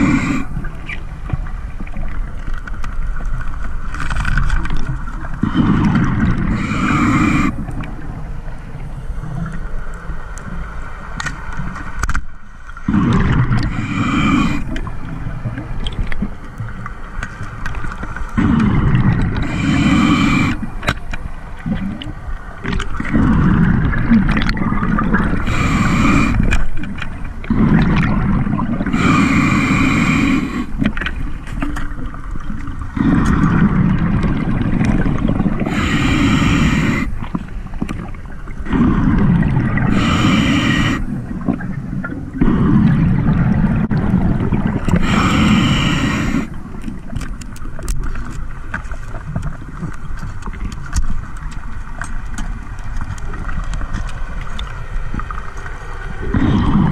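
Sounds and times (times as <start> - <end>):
hissing inhale through regulator: 0.0 - 0.7, 5.4 - 7.8, 12.9 - 14.9, 18.2 - 20.9, 25.0 - 31.2, 32.9 - 37.8, 38.7 - 41.3, 44.7 - 46.9
rumble of exhaled bubbles: 0.0 - 3.5, 4.2 - 10.0, 12.8 - 56.9.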